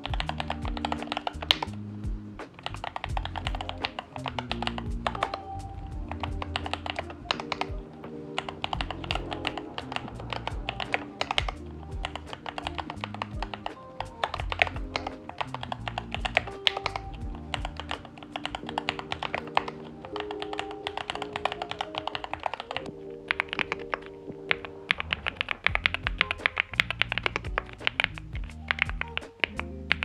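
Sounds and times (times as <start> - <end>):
mechanical keyboard typing: 0.0 - 1.8, 2.6 - 30.0
background music: 0.0 - 30.0.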